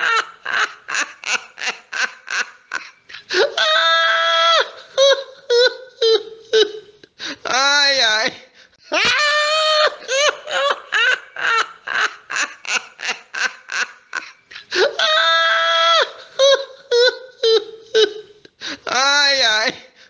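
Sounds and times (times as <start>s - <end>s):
high-pitched laughter: 0.0s - 7.0s, 8.9s - 18.5s
long high cry: 8.9s - 11.6s.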